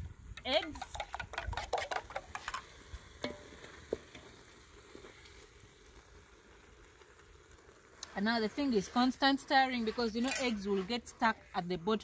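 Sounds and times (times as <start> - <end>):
food sizzling in saucepan: 0.4 - 12.0
stirring in a pot: 0.5 - 12.0
metal spoon scraping metal bowl: 9.9 - 11.0.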